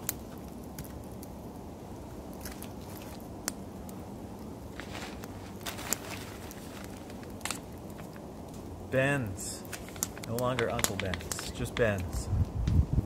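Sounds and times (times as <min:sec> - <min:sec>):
sharp pops of fire: 0:00.0 - 0:01.4, 0:04.8 - 0:08.7, 0:09.4 - 0:13.0
campfire crackling: 0:00.0 - 0:13.0
bag rustling and crunching: 0:04.7 - 0:08.1.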